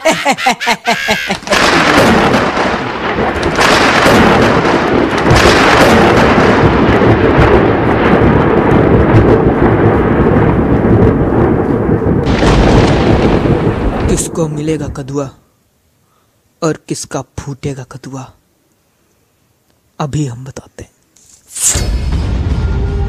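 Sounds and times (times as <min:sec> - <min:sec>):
rolling thunder: 0:01.4 - 0:15.4.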